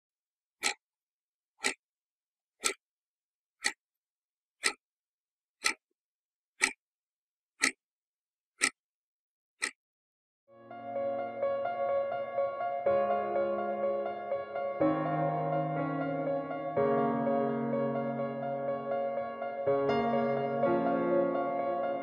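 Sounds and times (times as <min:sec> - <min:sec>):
wall clock ticking: 0:00.6 - 0:00.8, 0:01.6 - 0:01.8, 0:02.6 - 0:02.8, 0:03.6 - 0:03.8, 0:04.6 - 0:04.8, 0:05.6 - 0:05.8, 0:06.6 - 0:06.8, 0:07.6 - 0:07.8
music: 0:10.6 - 0:22.0.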